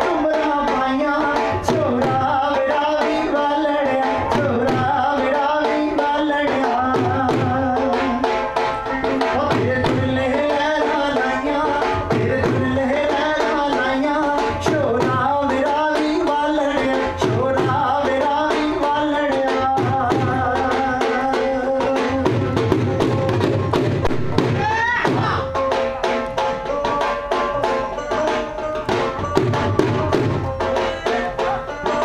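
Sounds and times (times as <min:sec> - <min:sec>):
steady drum beat: 0:00.0 - 0:32.0
wavering folk melody: 0:25.1 - 0:32.0.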